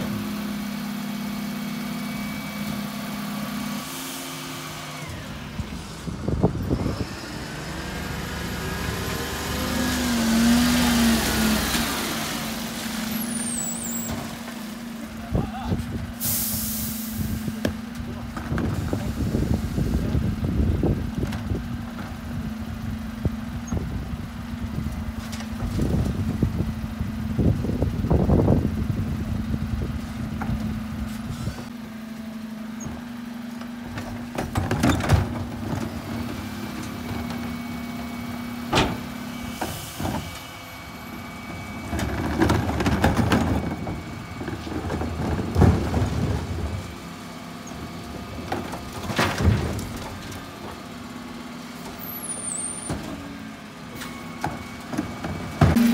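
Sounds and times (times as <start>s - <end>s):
bins knocking and banging: 33.9s - 37.5s, 41.6s - 47.0s, 48.1s - 50.8s, 54.4s - 55.9s.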